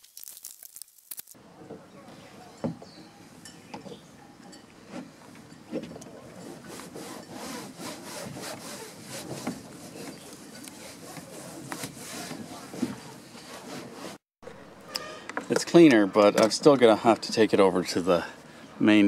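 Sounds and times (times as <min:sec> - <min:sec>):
sponge scrubbing seat: 0:06.4 - 0:14.2.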